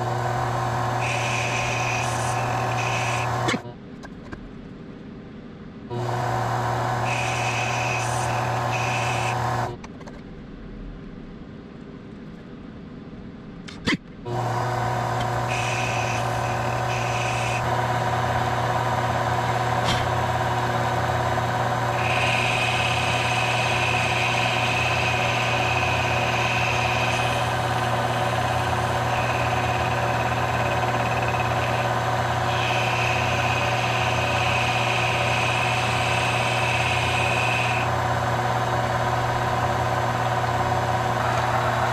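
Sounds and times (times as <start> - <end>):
lathe motor hum: 0.0 - 3.6, 5.9 - 9.7, 14.3 - 41.9
high whine: 0.9 - 3.7, 7.0 - 9.5, 15.2 - 38.0.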